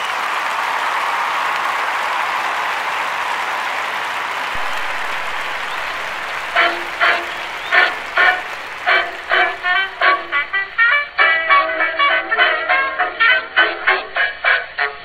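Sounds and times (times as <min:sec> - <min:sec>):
crowd applauding and cheering: 0:00.0 - 0:11.4
loud pitched toots: 0:04.6 - 0:11.3.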